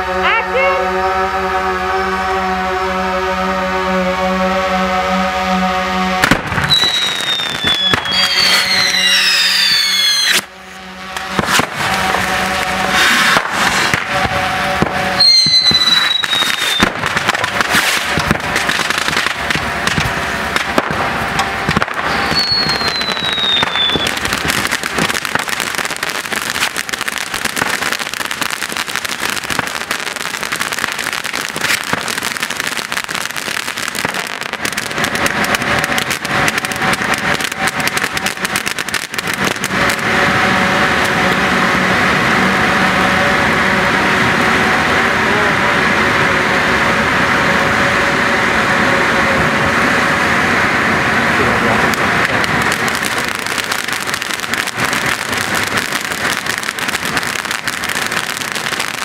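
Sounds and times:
crackling sparks: 4.2s - 59.0s
falling whistles: 6.7s - 10.5s, 15.2s - 16.9s, 22.1s - 24.2s
spark fountains hissing: 11.2s - 14.2s.

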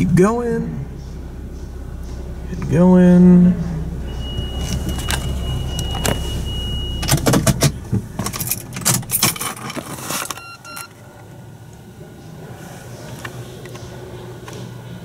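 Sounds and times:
steady high beep: 0.0s - 7.2s
car engine rumble: 0.0s - 15.0s.

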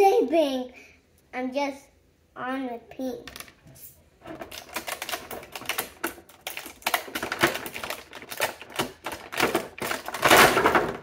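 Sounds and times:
plastic packaging crackling: 4.2s - 11.0s.

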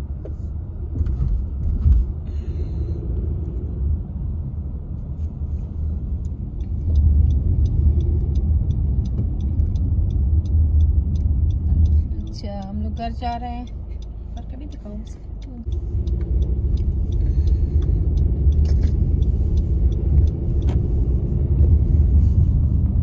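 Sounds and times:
car engine and tyres rumble: 0.0s - 23.0s
regular ticking: 5.5s - 23.0s.

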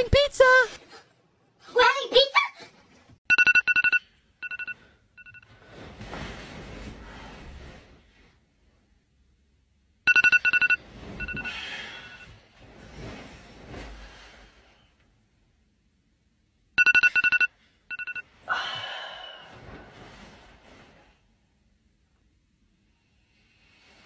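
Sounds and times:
phone alarm beeping: 3.3s - 5.4s, 10.1s - 12.3s, 16.8s - 18.2s.

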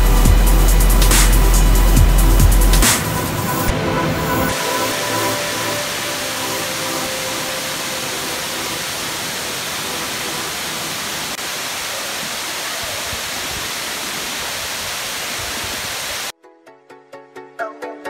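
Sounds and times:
waterfall pouring into pool: 4.5s - 16.3s.

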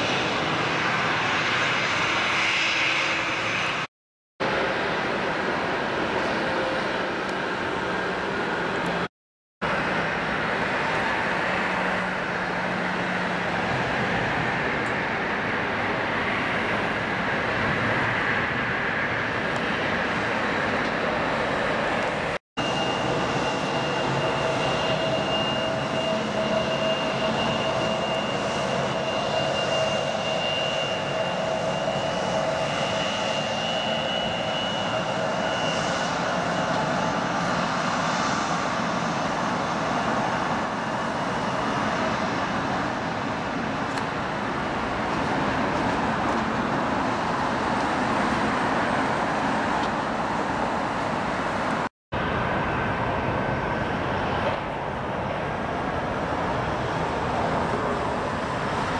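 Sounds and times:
jet engine whine: 0.0s - 58.9s.

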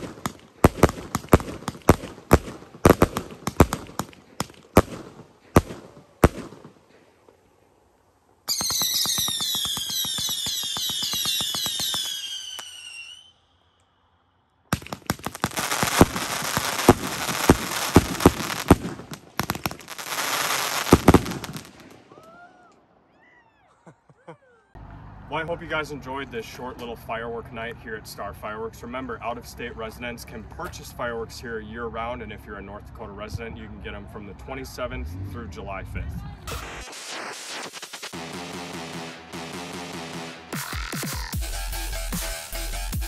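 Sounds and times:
firework reports: 0.0s - 6.7s, 8.5s - 13.2s, 14.7s - 22.0s, 33.2s - 38.9s
firework crackling and bangs: 0.0s - 6.9s, 8.5s - 13.1s, 14.7s - 22.1s, 36.5s - 38.6s
firework whistles falling in pitch: 8.5s - 13.5s.

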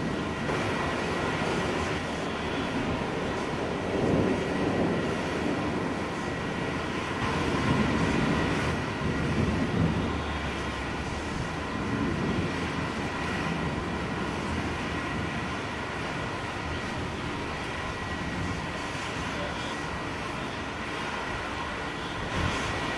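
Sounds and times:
distant thunder rumbling: 0.0s - 19.2s.

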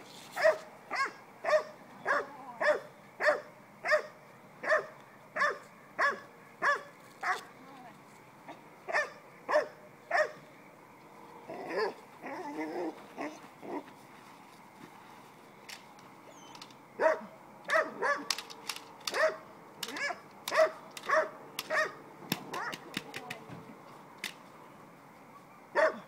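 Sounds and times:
dog barking: 0.4s - 7.4s, 8.9s - 10.4s, 17.0s - 18.3s, 19.1s - 19.4s, 20.0s - 22.8s, 25.7s - 26.0s
stick cracks: 18.2s - 19.2s, 19.8s - 23.4s.

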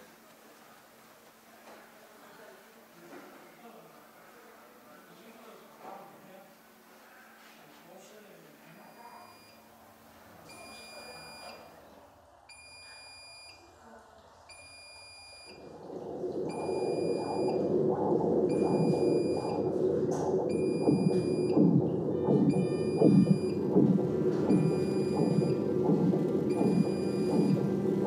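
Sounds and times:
equipment alarm beeping: 10.5s - 11.7s, 14.5s - 28.0s
low pulsing sound: 15.5s - 28.0s.

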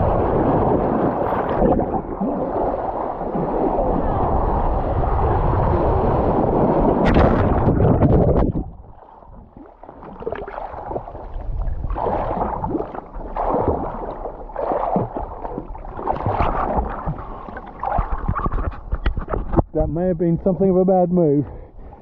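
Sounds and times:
rush of wind and spray: 0.0s - 9.5s
water sloshing and gurgling: 0.0s - 20.5s, 21.5s - 22.0s.

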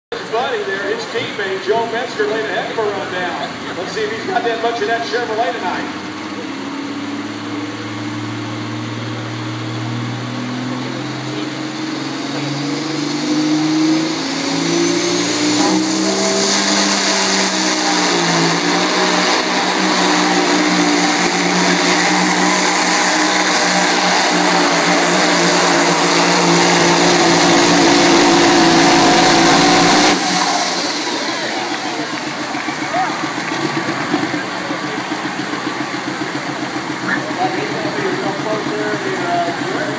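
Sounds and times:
diesel truck engine at full power: 0.0s - 39.9s
high whistle: 12.5s - 33.4s.

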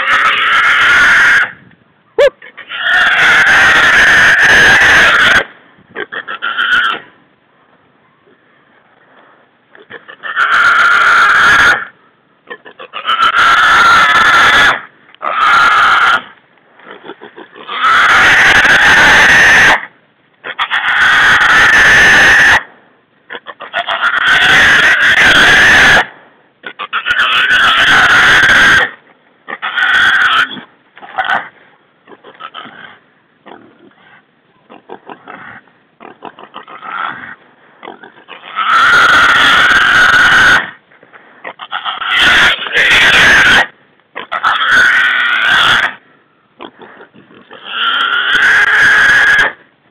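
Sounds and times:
hog squealing: 17.6s - 19.8s, 23.4s - 26.0s, 26.7s - 28.9s, 29.6s - 30.6s, 38.3s - 40.7s, 41.6s - 43.7s, 44.3s - 45.9s.

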